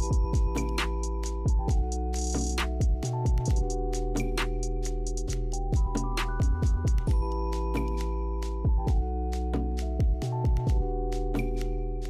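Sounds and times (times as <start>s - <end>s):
deep kick drum beat: 0.0s - 7.3s, 8.5s - 9.2s, 10.0s - 11.0s
electronic music with keyboard chords: 0.0s - 12.0s.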